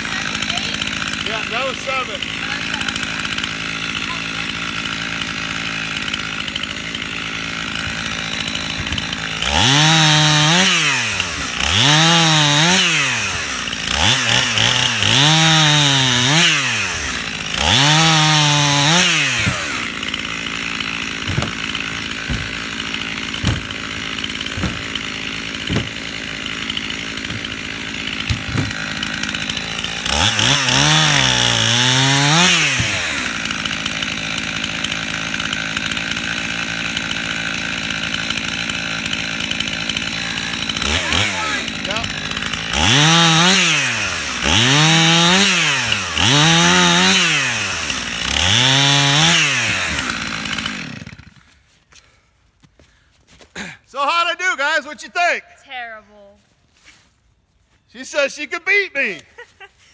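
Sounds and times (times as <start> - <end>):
chainsaw idling and revving: 0.0 - 52.1, 55.6 - 56.0
wood pieces knocking: 7.9 - 9.2, 19.3 - 31.3, 32.3 - 33.3.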